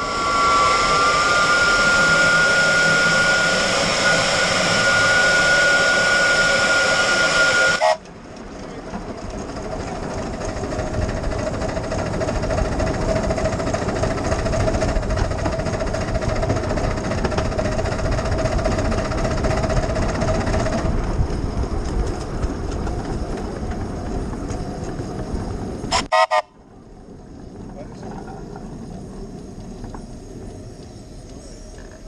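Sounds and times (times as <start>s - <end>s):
short steam whistle toots: 0.0s - 8.0s, 25.9s - 26.6s
miniature train on rails: 0.0s - 32.0s.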